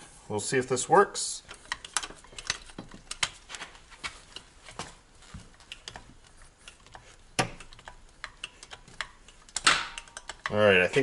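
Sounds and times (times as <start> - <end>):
hydraulic pump clicks and ticks: 1.5 - 4.5, 5.4 - 10.7.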